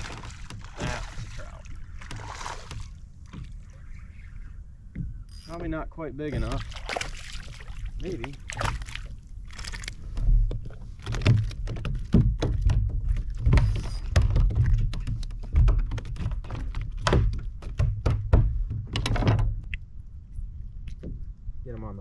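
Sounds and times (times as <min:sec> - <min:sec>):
knocks and taps on a kayak: 0:10.4 - 0:19.7.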